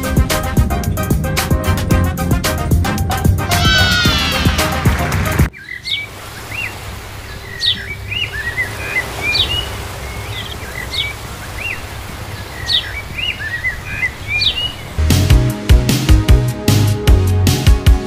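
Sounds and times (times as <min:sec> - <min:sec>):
music: 0:00.0 - 0:05.5, 0:15.0 - 0:18.0
songbird chirping: 0:03.5 - 0:04.8, 0:05.5 - 0:15.3.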